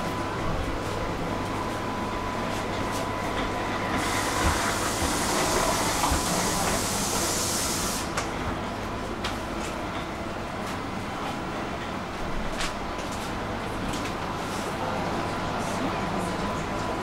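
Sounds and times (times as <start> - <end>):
train carriage hum: 0.0 - 17.0
compressed air hiss: 4.0 - 8.1.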